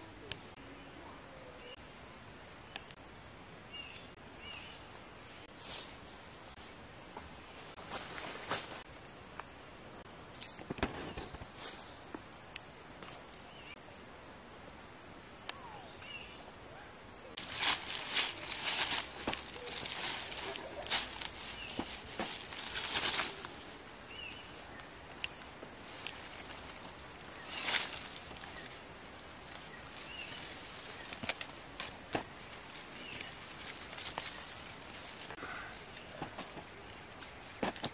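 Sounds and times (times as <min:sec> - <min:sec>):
faint chirps: 0:00.0 - 0:05.9, 0:15.3 - 0:31.4
insects droning: 0:00.0 - 0:37.9
leaves rustling: 0:07.4 - 0:09.0, 0:17.3 - 0:37.9
twig clicks: 0:10.4 - 0:11.4, 0:17.4 - 0:37.9
footsteps through undergrowth: 0:17.4 - 0:37.9.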